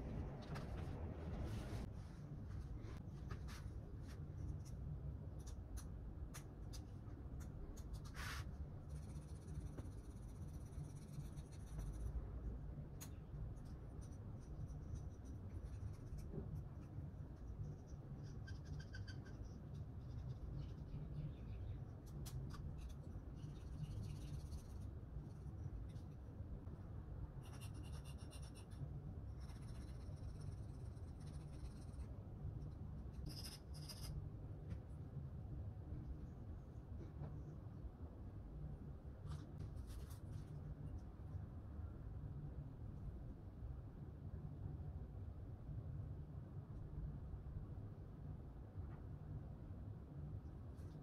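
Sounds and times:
faint low hum: 0:00.0 - 0:51.0.

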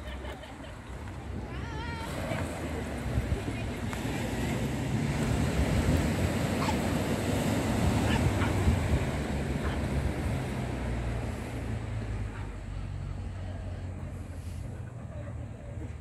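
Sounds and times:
small waves breaking: 0:00.1 - 0:12.8
wind buffeting microphone: 0:00.9 - 0:11.8.

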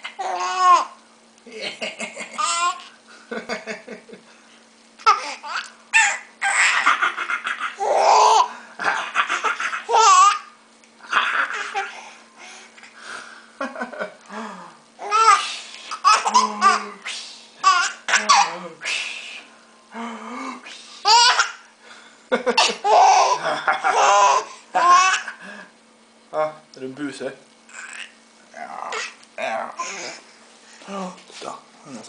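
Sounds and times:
baby laughing: 0:00.0 - 0:01.0, 0:01.7 - 0:03.0, 0:05.0 - 0:12.0, 0:15.0 - 0:16.9, 0:17.6 - 0:18.6, 0:21.0 - 0:21.7, 0:22.5 - 0:25.4, 0:27.7 - 0:28.2.

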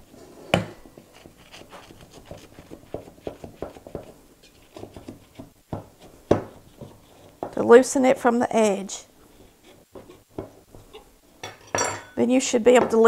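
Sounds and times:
knife scraping cake pan: 0:00.2 - 0:05.4, 0:06.0 - 0:07.6.

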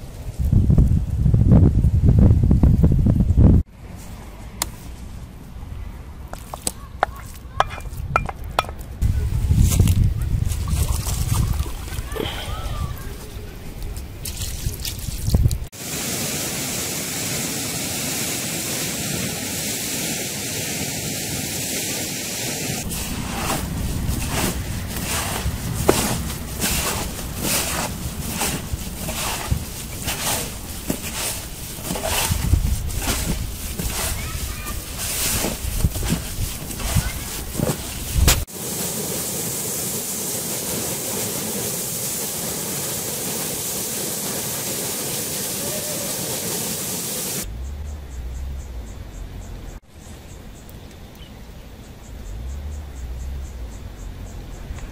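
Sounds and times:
wind rumble on microphone: 0:00.0 - 0:03.7, 0:07.8 - 0:15.7, 0:22.8 - 0:38.5
wooden spatula knocking and scraping: 0:06.3 - 0:08.9, 0:22.9 - 0:38.5
hands kneading mixture in bowl: 0:09.6 - 0:15.6, 0:22.8 - 0:38.5.

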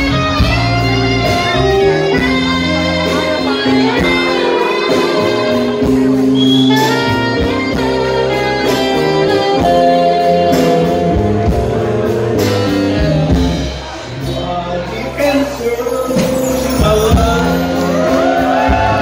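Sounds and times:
saxophone melody: 0:00.0 - 0:13.7
drum kit steady beat: 0:00.0 - 0:19.0
electric guitar: 0:00.0 - 0:19.0.

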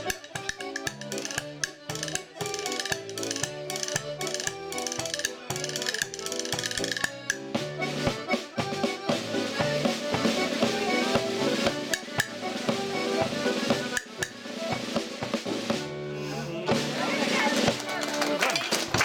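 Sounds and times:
accordion and banjo dance tune: 0:00.0 - 0:19.0.

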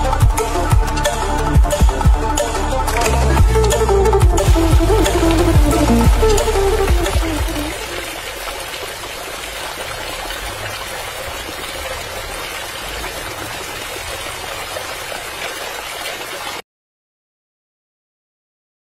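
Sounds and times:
water pouring and splashing: 0:02.8 - 0:16.6.

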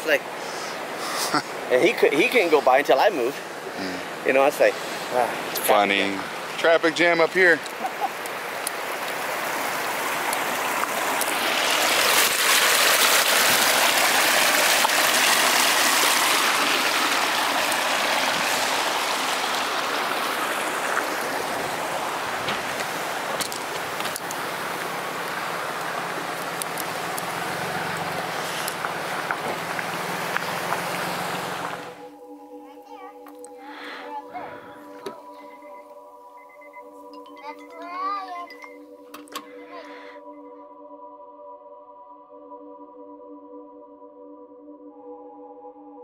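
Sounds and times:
water rushing in rocky creek: 0:00.0 - 0:32.0.

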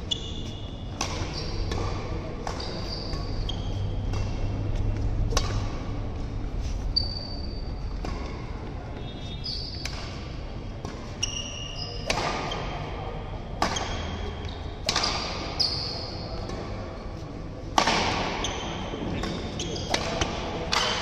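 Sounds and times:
shoes squeaking on court: 0:00.0 - 0:17.3, 0:18.1 - 0:20.6
racket striking shuttlecock: 0:00.2 - 0:06.4, 0:09.7 - 0:12.9, 0:13.5 - 0:17.0, 0:17.7 - 0:21.0.

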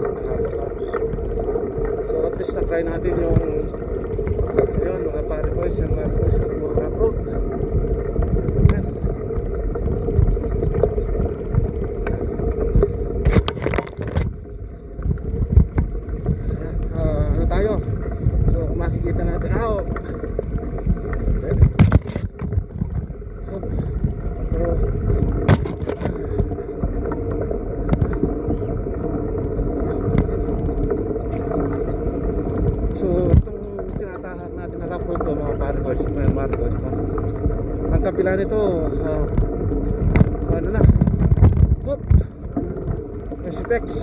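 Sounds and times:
wind rumbling on microphone: 0:00.0 - 0:44.0
bicycle knocks and rattles: 0:02.1 - 0:14.4, 0:15.0 - 0:28.7, 0:39.0 - 0:44.0.

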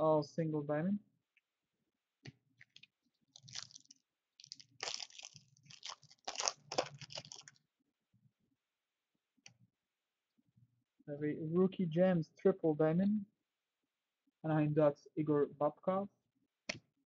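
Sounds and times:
foil wrapper crinkling: 0:02.7 - 0:07.6.

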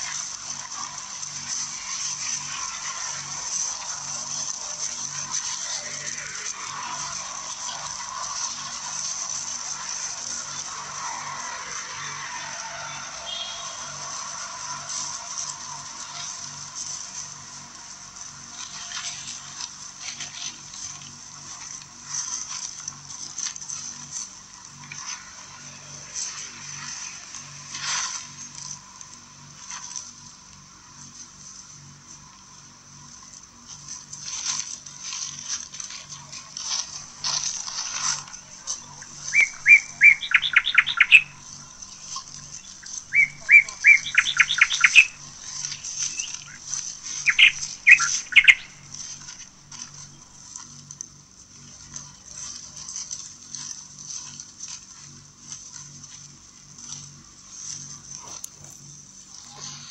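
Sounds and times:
dry leaves crunching: 0:00.0 - 0:59.9
songbird singing: 0:09.7 - 0:16.3, 0:36.9 - 0:50.4.

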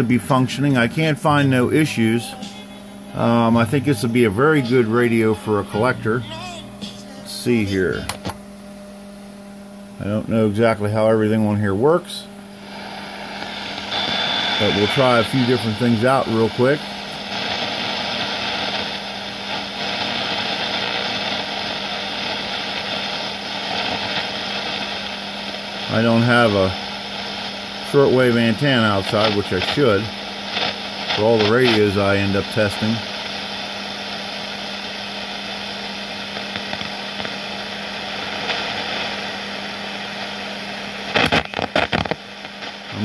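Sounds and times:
sharp radio crackles: 0:00.0 - 0:08.5, 0:10.0 - 0:43.0
radio static hiss: 0:00.0 - 0:43.0.

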